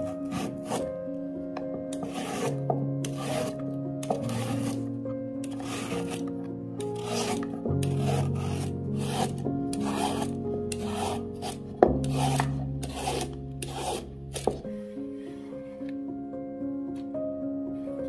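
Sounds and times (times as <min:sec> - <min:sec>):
peeler scraping carrot: 0:00.0 - 0:01.0, 0:01.9 - 0:14.6.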